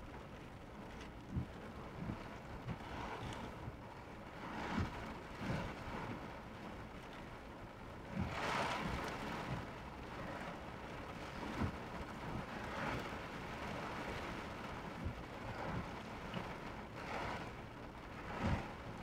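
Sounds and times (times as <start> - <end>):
heavy rain on a car: 0.0 - 19.0.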